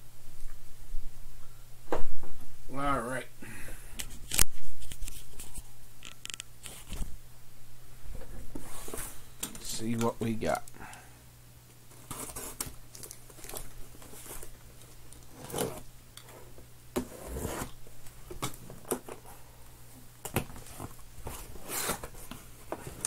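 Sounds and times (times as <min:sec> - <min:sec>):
packing tape ripping: 0:12.0 - 0:16.3, 0:20.2 - 0:23.0
cardboard flaps scraping: 0:15.3 - 0:17.8, 0:20.4 - 0:23.0.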